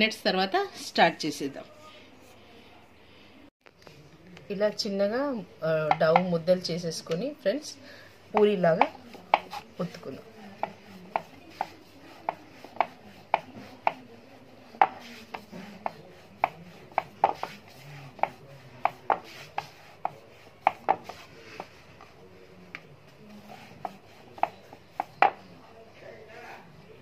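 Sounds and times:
rolling pin rolling dough: 5.7s - 25.8s.

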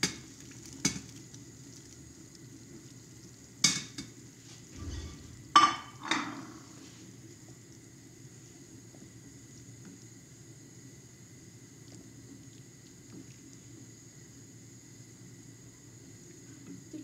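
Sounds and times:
pot boiling and bubbling: 0.0s - 17.0s
spoon and bowl knocking on metal pot: 5.0s - 6.6s.

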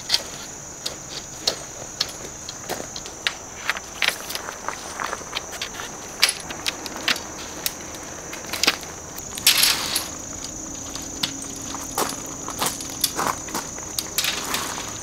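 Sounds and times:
high insect trill: 0.0s - 15.0s
scraping rustle: 0.0s - 15.0s
metal poles clicking and knocking: 5.6s - 15.0s.

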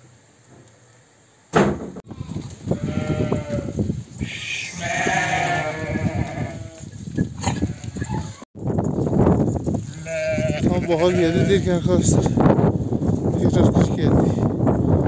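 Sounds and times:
sheep bleating: 2.1s - 6.8s, 7.4s - 8.4s, 9.9s - 11.8s.

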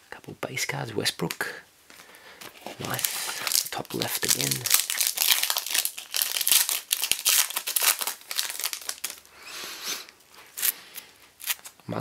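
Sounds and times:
plastic wrapper tearing and crumpling: 2.5s - 9.3s, 10.5s - 11.8s.

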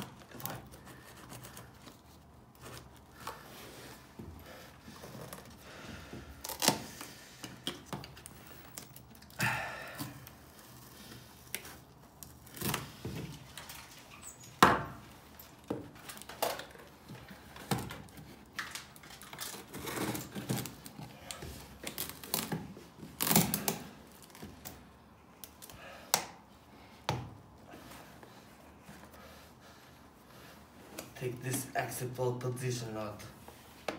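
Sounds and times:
cardboard box and tape rustling: 0.0s - 9.4s, 10.0s - 25.9s.

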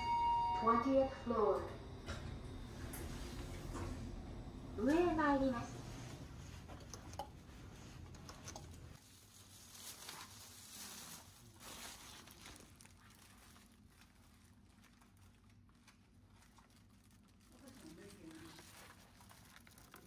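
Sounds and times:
low hum: 0.0s - 8.9s.

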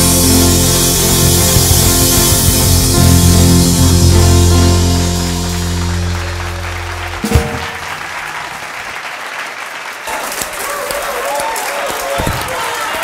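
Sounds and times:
drum kit hit: 0.0s - 8.9s
rock band held chord: 0.0s - 9.2s
audience applauding: 5.6s - 13.0s.

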